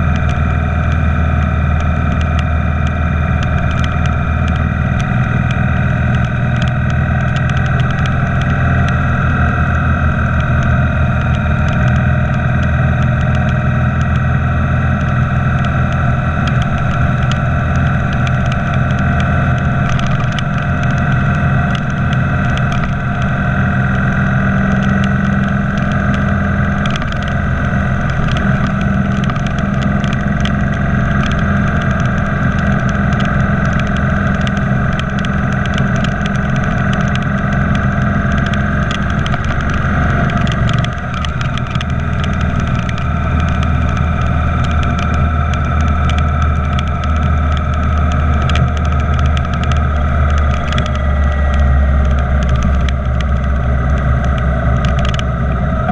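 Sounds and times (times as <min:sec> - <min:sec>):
motorcycle engine running: 0:00.0 - 0:55.9
road noise: 0:00.0 - 0:55.9.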